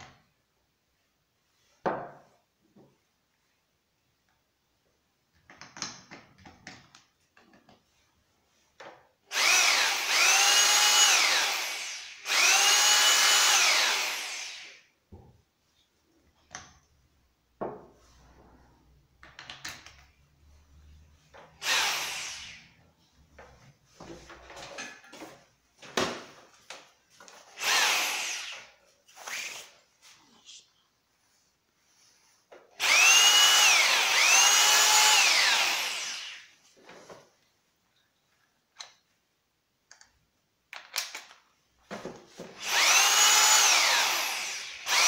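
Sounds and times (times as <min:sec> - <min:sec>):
rotary hammer motor: 0:09.3 - 0:14.7, 0:21.6 - 0:22.6, 0:27.6 - 0:29.5, 0:32.8 - 0:36.4, 0:42.6 - 0:45.0.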